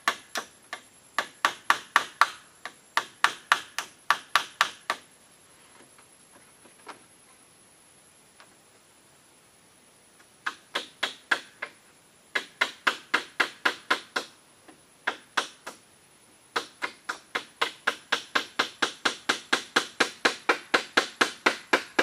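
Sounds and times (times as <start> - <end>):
hammering on bamboo: 0.0 - 5.1, 10.4 - 15.8, 16.5 - 22.0.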